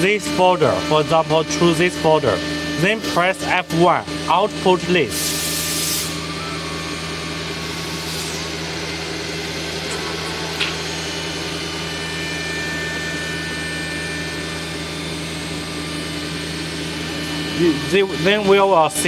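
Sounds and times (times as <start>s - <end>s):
workshop machinery humming: 0.0s - 19.0s.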